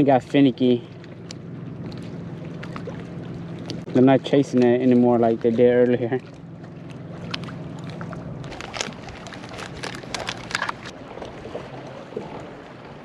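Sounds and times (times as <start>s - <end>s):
low steady hum: 0.0s - 13.0s
water lapping: 0.0s - 13.0s
fishing gear clicking and knocking: 8.4s - 10.9s.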